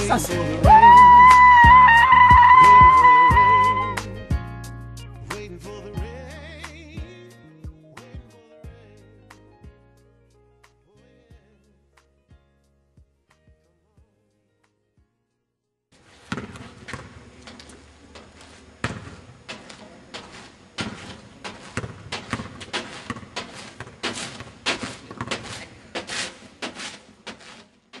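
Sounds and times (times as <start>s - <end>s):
open-air background noise: 15.9s - 28.0s
basketball bouncing on asphalt: 16.0s - 28.0s.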